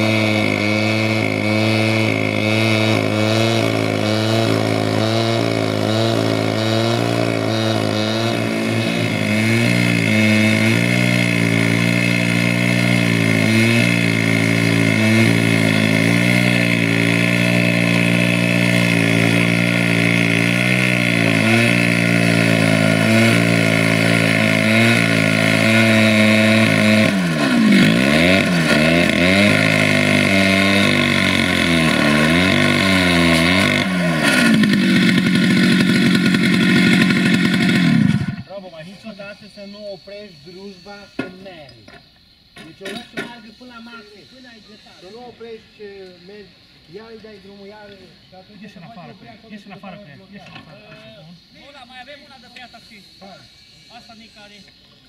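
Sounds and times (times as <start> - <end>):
cut-off saw grinding steel: 0.0 - 38.5.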